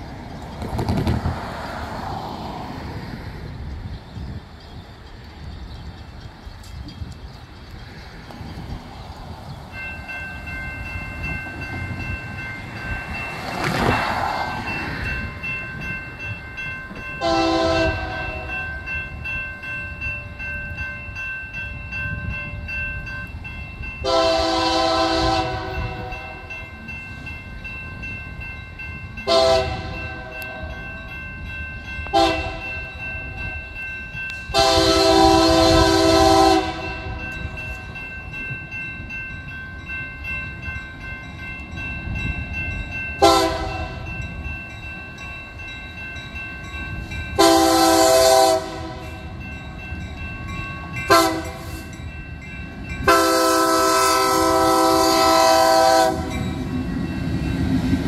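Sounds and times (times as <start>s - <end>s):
crossing warning bell ringing: 0.0s - 58.0s
low rumble of train: 0.0s - 58.0s
locomotive air horn: 17.2s - 18.6s, 24.0s - 26.5s, 29.3s - 30.8s, 32.1s - 32.8s, 34.5s - 37.2s, 43.2s - 44.0s, 47.4s - 49.2s, 51.1s - 51.9s, 53.0s - 56.4s.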